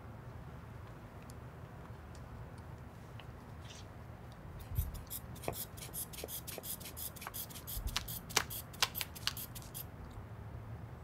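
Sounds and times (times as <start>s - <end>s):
air puffs from rubber bulb: 4.6s - 9.8s.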